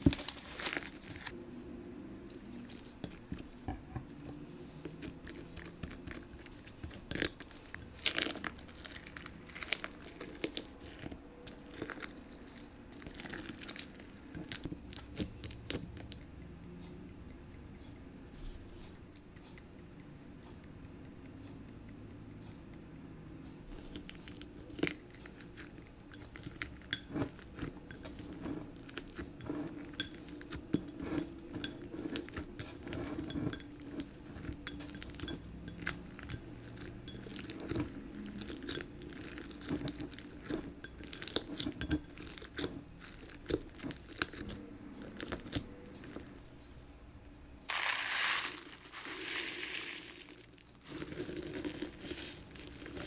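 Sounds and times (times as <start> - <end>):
pellets pouring hiss: 47.7 - 52.5.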